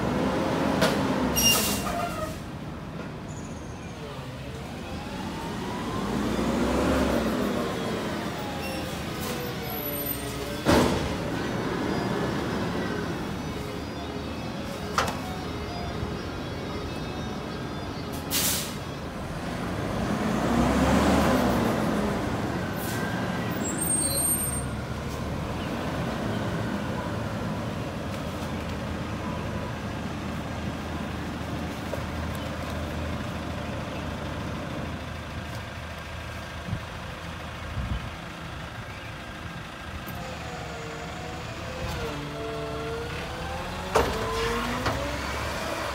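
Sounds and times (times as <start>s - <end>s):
diesel engine idling: 28.7s - 41.6s.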